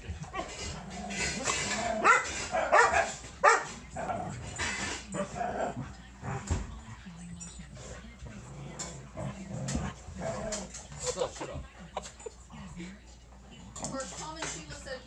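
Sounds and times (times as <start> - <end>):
dogs barking and yipping: 0.2 - 4.0.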